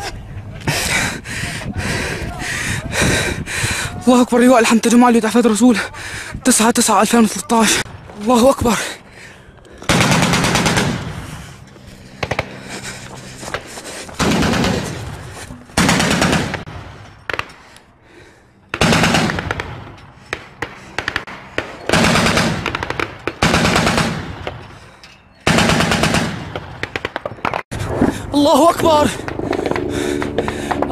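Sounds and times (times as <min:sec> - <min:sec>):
machine gun firing bursts: 0:09.9 - 0:11.2, 0:14.2 - 0:15.2, 0:15.8 - 0:16.7, 0:18.7 - 0:19.8, 0:20.9 - 0:24.4, 0:25.5 - 0:27.4.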